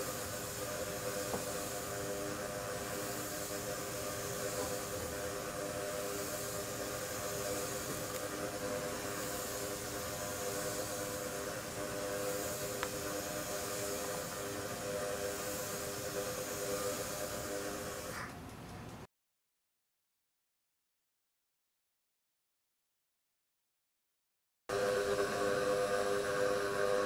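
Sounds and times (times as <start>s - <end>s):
compressed air hiss: 0.0s - 18.4s.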